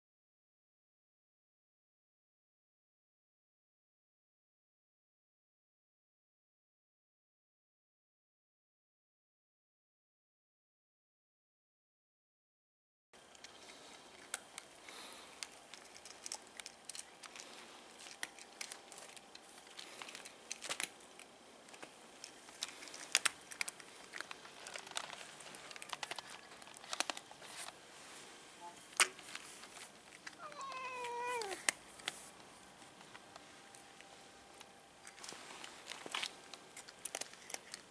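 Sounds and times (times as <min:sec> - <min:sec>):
cats crunching dry kibble: 0:13.2 - 0:37.9
cat meowing: 0:30.4 - 0:31.7.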